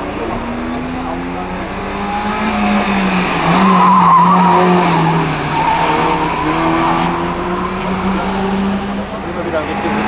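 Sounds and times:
car engine drone: 0:00.0 - 0:10.0
tyres squealing: 0:03.1 - 0:08.2.

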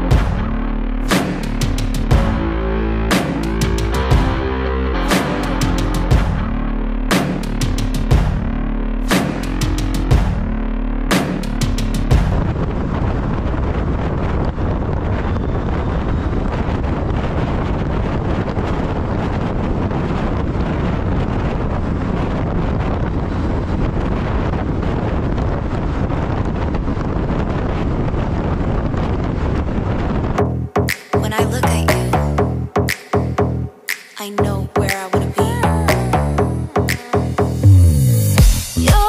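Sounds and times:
wind rushing over microphone: 0:11.3 - 0:30.8.

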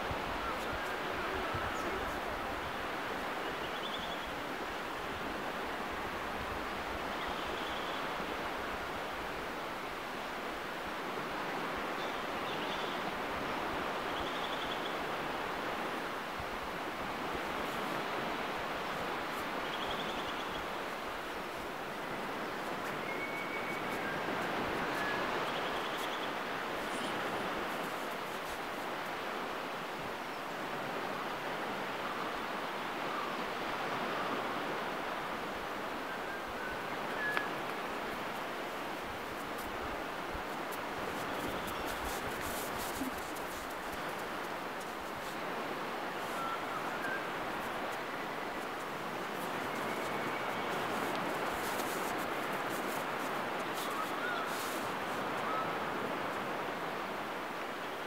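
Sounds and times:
wind: 0:00.0 - 0:58.0.

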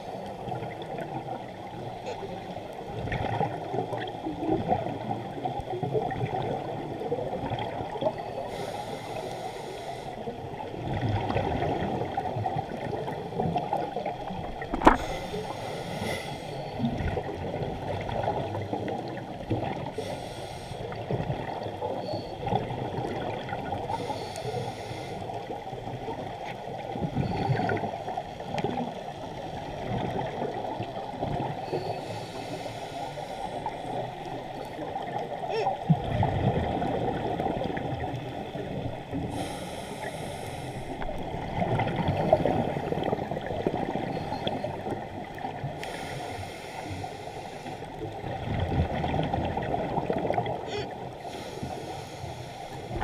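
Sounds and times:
muffled water rush: 0:00.0 - 0:53.0
scuba regulator hiss and bubbles: 0:08.4 - 0:10.3, 0:14.9 - 0:16.8, 0:19.9 - 0:21.0, 0:23.8 - 0:25.6, 0:31.7 - 0:33.9, 0:39.2 - 0:41.1, 0:45.8 - 0:48.0, 0:50.7 - 0:53.0.

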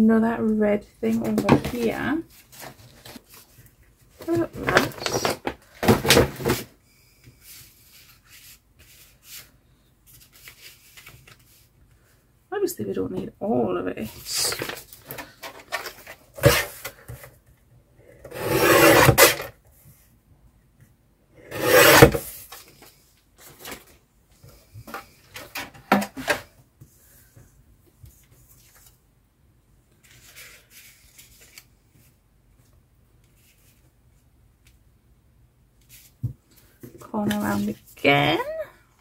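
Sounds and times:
paper rustling: 0:01.3 - 0:06.7, 0:07.4 - 0:11.7, 0:14.2 - 0:17.2, 0:30.0 - 0:32.2
card being cut: 0:18.3 - 0:19.4, 0:21.5 - 0:22.3.

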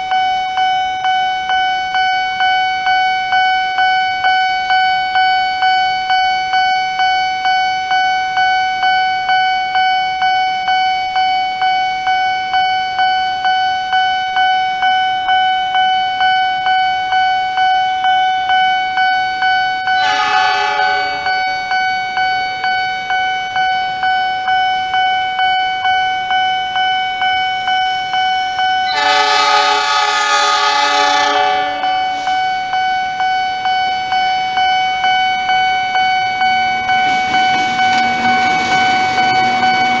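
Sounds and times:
railroad crossing alarm dinging: 0:00.0 - 0:40.0
train horn: 0:20.0 - 0:21.9, 0:28.9 - 0:32.4.

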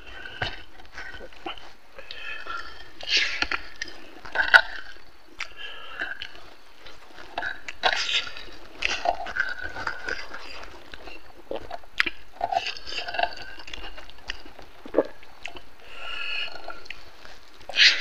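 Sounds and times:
open-mouth chewing: 0:00.0 - 0:18.0.

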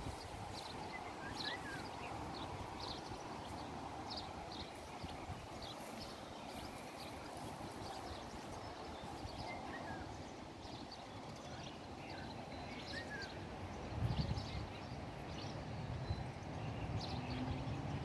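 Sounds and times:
steady background hiss: 0:00.0 - 0:16.8
swallows twittering: 0:00.0 - 0:18.0.

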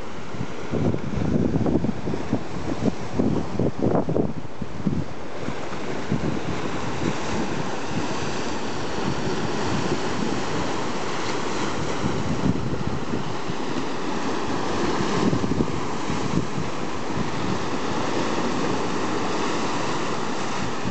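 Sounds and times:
wind buffeting microphone: 0:00.0 - 0:20.9
waves splashing on rocks: 0:05.3 - 0:20.9.

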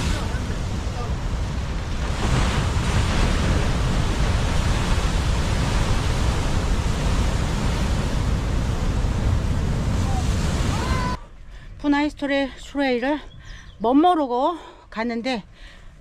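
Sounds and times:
heavy surf breaking: 0:00.0 - 0:11.2
wind rumbling on microphone: 0:00.0 - 0:11.8.

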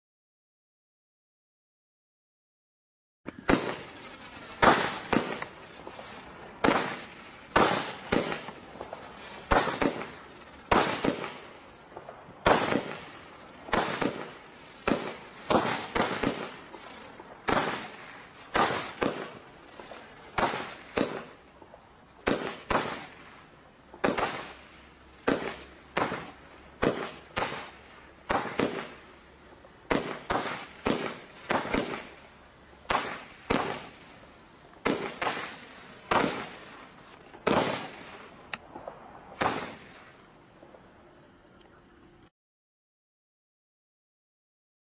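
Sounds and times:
fireworks cake banging: 0:03.3 - 0:11.5, 0:12.4 - 0:23.2, 0:29.9 - 0:34.0, 0:34.8 - 0:38.3.

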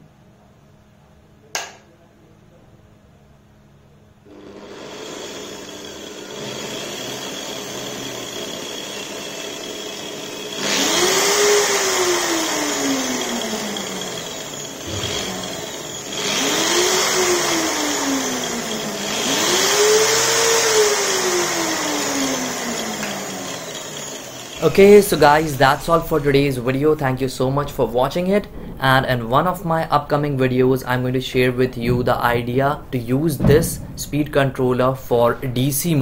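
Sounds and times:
angle grinder motor whine: 0:04.3 - 0:27.6.

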